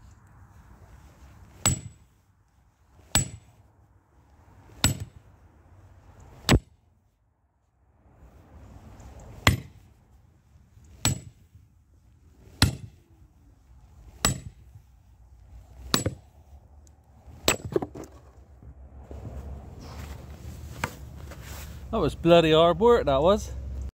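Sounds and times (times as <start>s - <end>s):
sledgehammer striking metal wedge: 1.6s - 2.1s, 3.1s - 3.5s, 4.7s - 5.2s, 6.4s - 6.8s, 9.4s - 9.8s, 11.0s - 11.5s, 12.6s - 13.0s, 14.2s - 14.6s, 15.9s - 16.3s, 17.4s - 18.1s.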